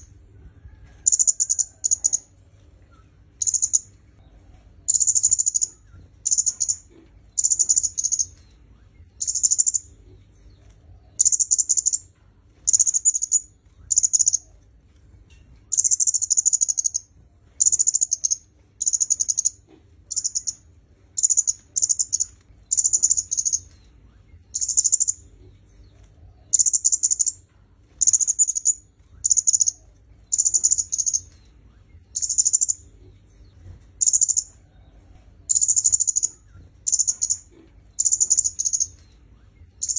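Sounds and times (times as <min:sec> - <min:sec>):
bird high-pitched chattering call: 0:01.1 - 0:02.2, 0:03.4 - 0:03.9, 0:04.9 - 0:08.4, 0:09.2 - 0:09.9, 0:11.2 - 0:12.1, 0:12.7 - 0:14.5, 0:15.7 - 0:20.6, 0:21.2 - 0:23.8, 0:24.5 - 0:25.2, 0:26.5 - 0:27.4, 0:28.0 - 0:31.4, 0:32.1 - 0:32.9, 0:34.0 - 0:34.6, 0:35.5 - 0:39.0.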